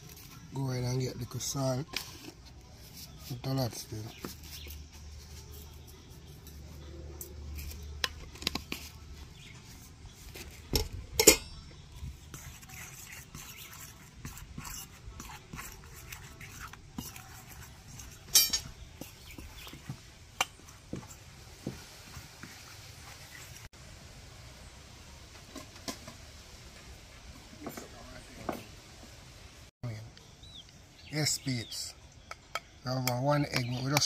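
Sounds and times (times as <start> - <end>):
kitchenware clatter: 10.7 - 11.6, 18.3 - 18.8
utensils clinking against dishes: 10.7 - 11.6, 18.2 - 18.8.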